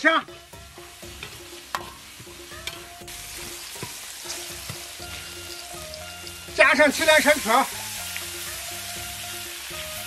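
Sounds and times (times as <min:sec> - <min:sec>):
spices sizzling in hot oil: 0:00.0 - 0:10.0
metal ladle knocking wok: 0:01.1 - 0:02.9.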